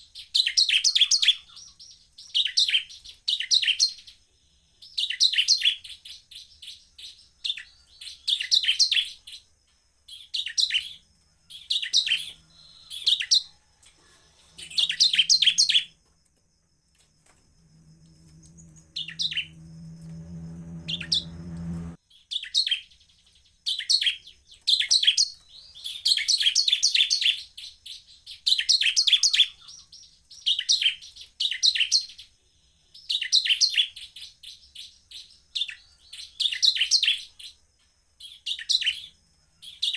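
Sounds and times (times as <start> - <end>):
bird high chattering song: 0.0 - 9.5, 10.1 - 16.0, 18.2 - 32.3, 33.0 - 37.6
low hum: 17.2 - 22.0.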